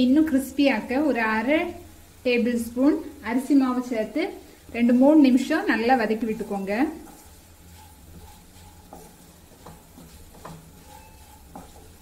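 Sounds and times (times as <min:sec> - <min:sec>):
potatoes sizzling in oil: 0:00.0 - 0:12.0
spatula scraping a pan: 0:04.8 - 0:12.0.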